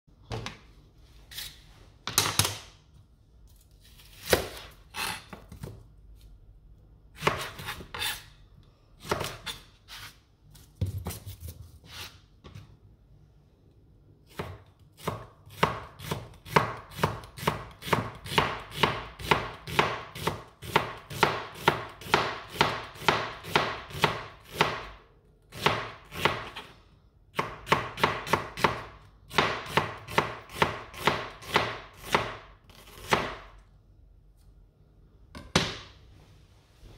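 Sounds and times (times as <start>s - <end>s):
knife slicing onion on board: 3.8s - 6.3s, 7.1s - 8.4s, 9.0s - 12.6s, 14.3s - 26.7s, 27.3s - 33.5s.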